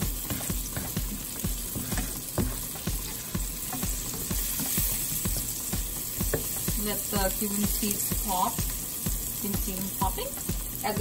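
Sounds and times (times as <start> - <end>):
spatula scraping a pan: 0.0 - 5.5
spices sizzling in hot oil: 0.0 - 11.0.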